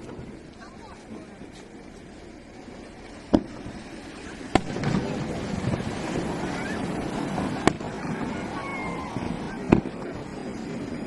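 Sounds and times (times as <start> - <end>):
fireworks sharp bangs: 0.0 - 11.0
fireworks whistles: 3.2 - 11.0.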